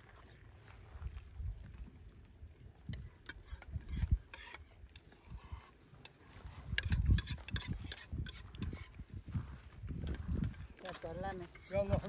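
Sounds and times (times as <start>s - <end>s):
metal spoons scraping plates: 3.3s - 4.6s, 6.8s - 9.0s, 10.8s - 12.0s.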